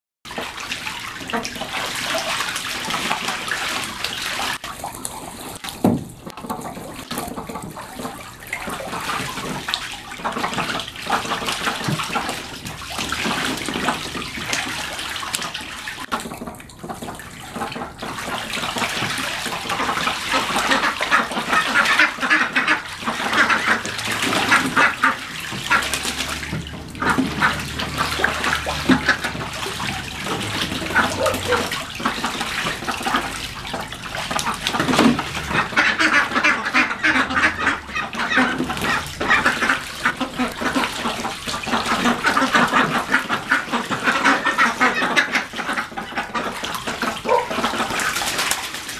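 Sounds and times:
ducks splashing water: 0:00.3 - 0:48.9
ducks quacking: 0:18.7 - 0:48.6.

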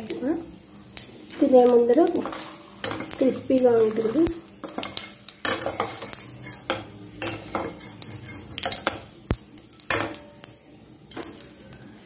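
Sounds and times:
oil sizzling: 0:00.0 - 0:12.0
metal spoon scraping a steel pan: 0:02.2 - 0:09.0.

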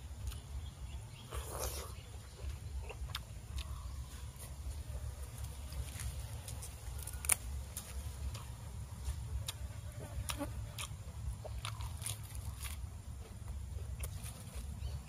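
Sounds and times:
leafy greens tearing and snapping: 0:05.4 - 0:08.5, 0:10.3 - 0:12.9.

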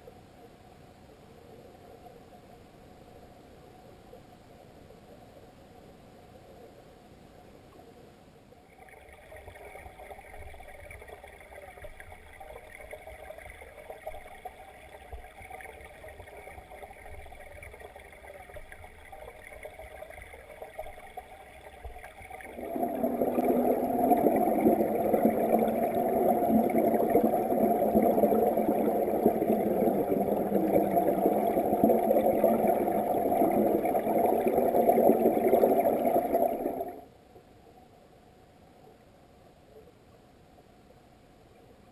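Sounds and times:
muffled stream water rushing: 0:08.7 - 0:37.1.

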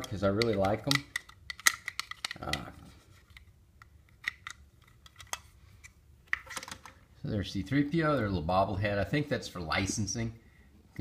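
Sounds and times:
light clicks and taps: 0:00.0 - 0:02.7.

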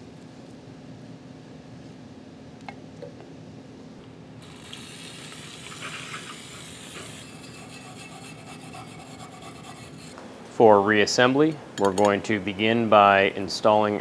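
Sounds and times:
liquid hissing and splashing: 0:04.4 - 0:10.0
brush scrubbing metal part: 0:04.6 - 0:10.2.

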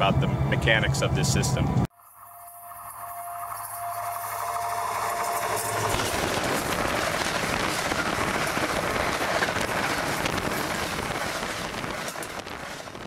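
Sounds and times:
train wheels on rails: 0:03.4 - 0:13.0.

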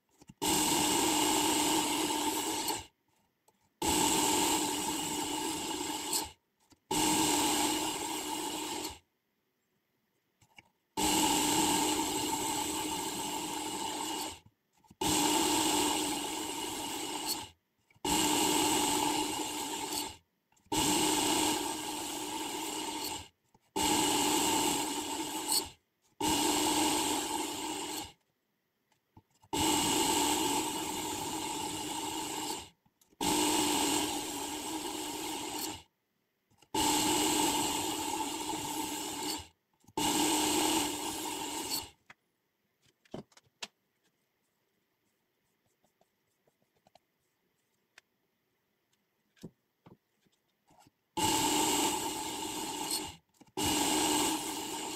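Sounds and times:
belt sharpener grinding blade: 0:11.0 - 0:28.2, 0:29.5 - 0:35.9, 0:36.6 - 0:42.0, 0:51.2 - 0:54.9.

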